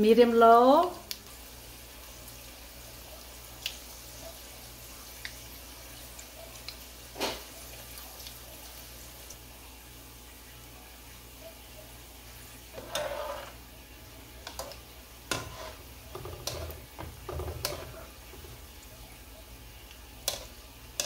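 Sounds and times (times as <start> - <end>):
balls deep-frying in oil: 0.0 - 21.0
wire skimmer tapping a pan: 14.4 - 18.6, 20.2 - 21.0.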